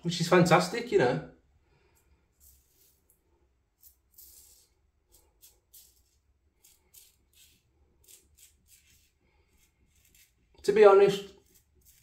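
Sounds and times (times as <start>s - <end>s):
razor scraping stubble: 3.8s - 12.0s.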